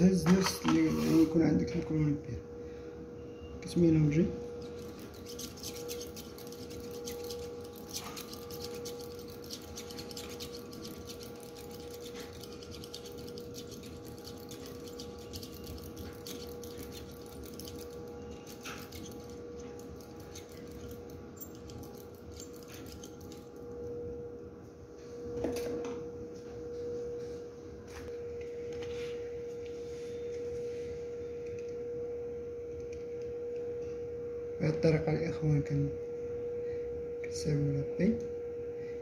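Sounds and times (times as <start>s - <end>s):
steady mid-pitched hum: 0.0s - 39.0s.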